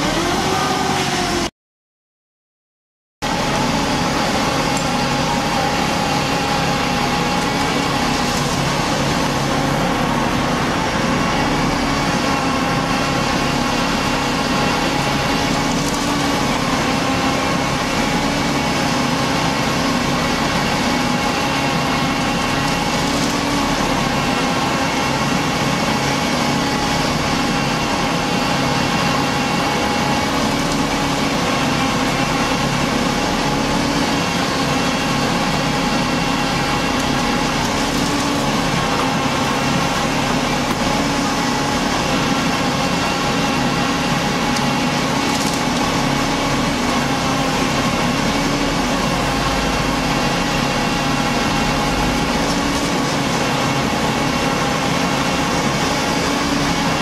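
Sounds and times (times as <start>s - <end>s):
truck diesel engine humming: 3.2s - 57.0s.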